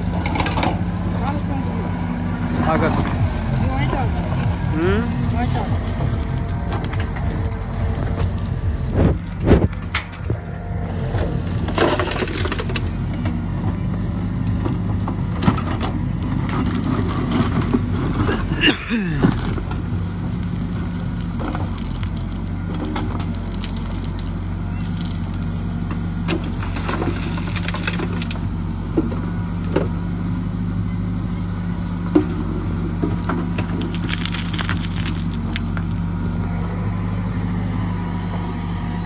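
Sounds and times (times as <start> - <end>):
diesel engine running: 0.0 - 39.0
rocks and soil clattering: 11.0 - 30.0, 32.2 - 36.2.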